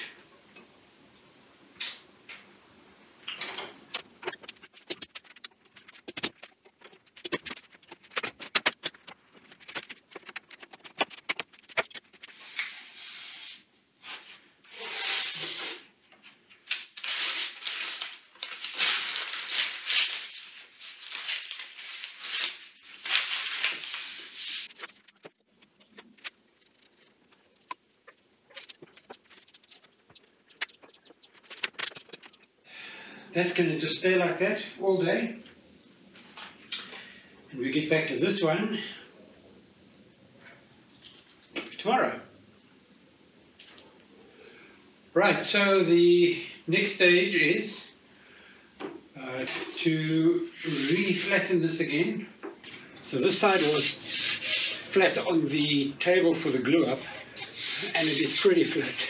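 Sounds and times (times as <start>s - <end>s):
rough scraping strokes: 50.5s - 51.2s, 53.1s - 55.2s, 56.7s - 59.0s.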